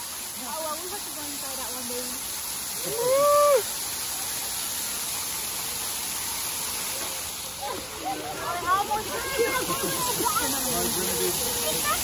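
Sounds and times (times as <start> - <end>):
fountain jets spraying: 0.0 - 12.0
person whooping: 2.8 - 3.7.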